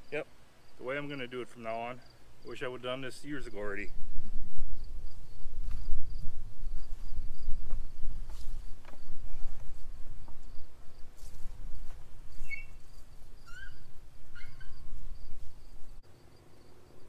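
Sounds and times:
crickets trilling: 0:00.0 - 0:17.0
bird chirps: 0:12.4 - 0:14.9.

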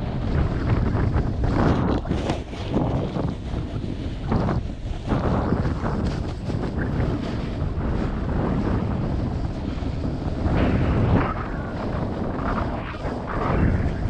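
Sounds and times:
snowboard edge scraping snow: 0:00.0 - 0:14.0
wind buffeting microphone: 0:00.0 - 0:14.0.

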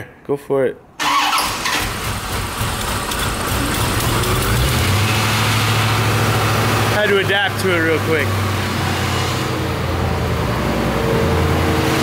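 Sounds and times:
car engine idling: 0:01.7 - 0:08.3.

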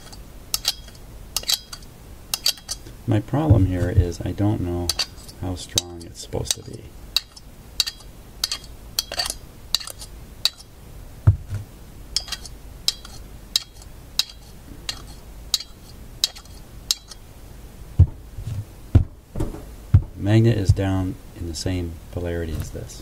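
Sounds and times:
magnets clicking together: 0:00.0 - 0:02.8, 0:04.9 - 0:10.7
dull knock: 0:11.3 - 0:11.6, 0:18.9 - 0:20.8.

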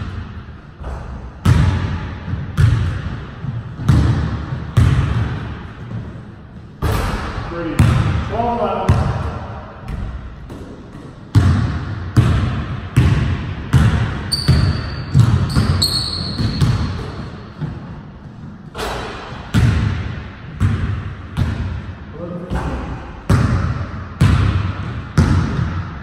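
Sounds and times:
basketball bouncing on wooden floor: 0:00.8 - 0:06.2, 0:07.8 - 0:08.3, 0:08.9 - 0:17.9, 0:18.8 - 0:21.9, 0:22.5 - 0:26.0
sneakers squeaking: 0:08.9 - 0:19.9.

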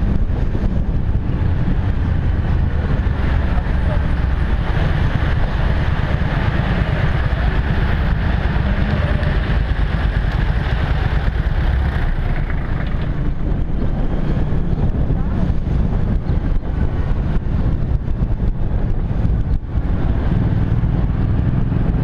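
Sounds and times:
motorcycle engine running: 0:00.0 - 0:22.0
wind rumbling on microphone: 0:00.0 - 0:22.0.

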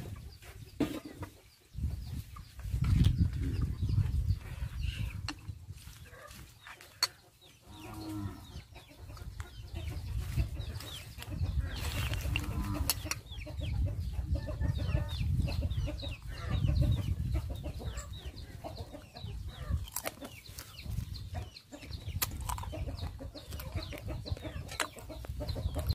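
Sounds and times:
fowl clucking: 0:06.1 - 0:20.4.

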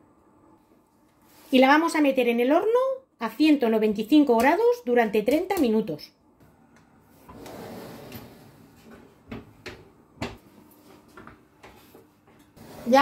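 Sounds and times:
oven door scraping: 0:07.2 - 0:09.2, 0:12.6 - 0:13.0.

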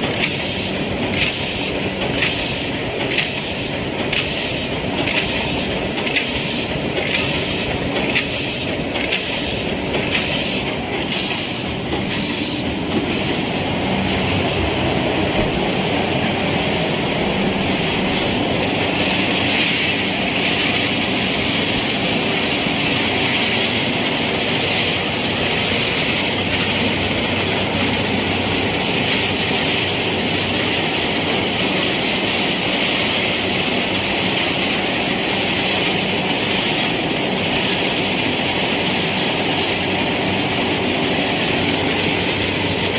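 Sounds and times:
regular mechanical strokes: 0:00.0 - 0:14.5
production line machinery: 0:00.0 - 0:42.9.

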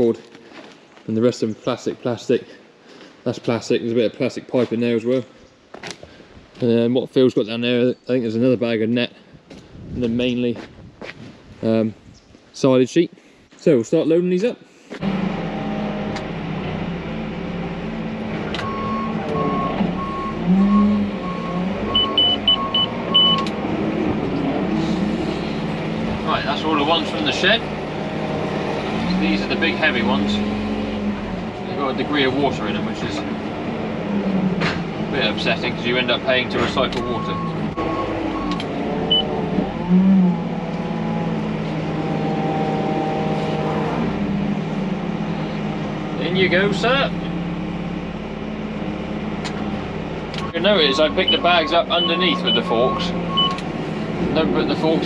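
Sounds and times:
diesel engine running: 0:15.0 - 0:55.0
reversing alarm beeping: 0:18.6 - 0:23.5, 0:37.0 - 0:39.3, 0:50.4 - 0:53.6
short high beep: 0:21.9 - 0:23.4.

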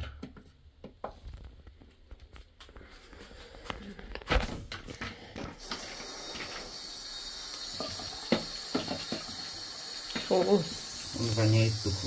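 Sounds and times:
sink tap running: 0:05.6 - 0:12.0.

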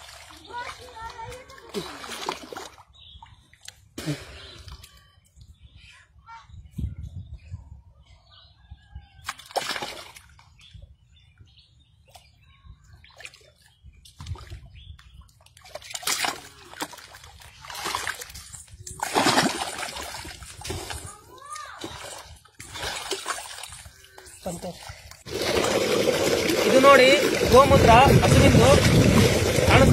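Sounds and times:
water splashing in bath: 0:00.0 - 0:02.8, 0:09.3 - 0:10.3, 0:15.6 - 0:29.9.

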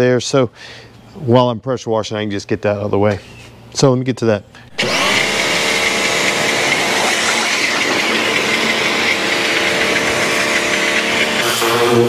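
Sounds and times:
pressure washer motor hum: 0:04.7 - 0:12.0
water jet hissing: 0:04.7 - 0:12.0.

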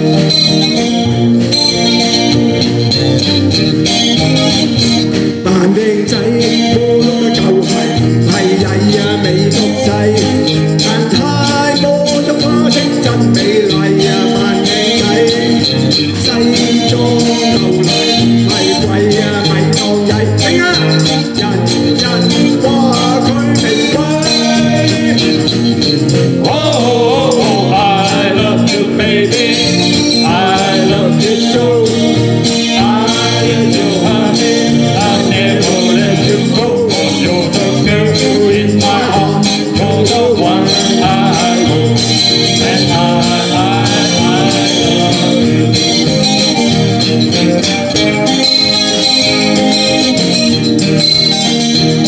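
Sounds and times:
live band playing pop: 0:00.0 - 0:52.0.

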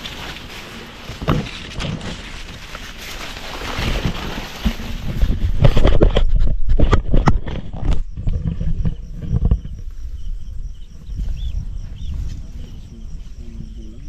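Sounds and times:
wind buffeting microphone: 0:04.1 - 0:14.0.

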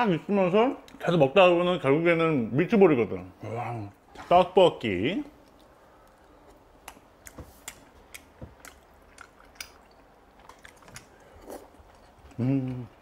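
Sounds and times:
wet chewing mouth sounds: 0:05.3 - 0:13.0.

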